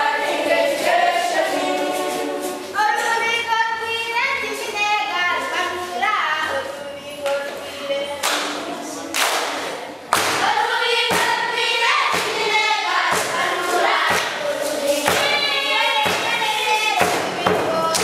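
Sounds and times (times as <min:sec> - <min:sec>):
children's choir singing: 0:00.0 - 0:18.0
thudding beat: 0:10.1 - 0:18.0.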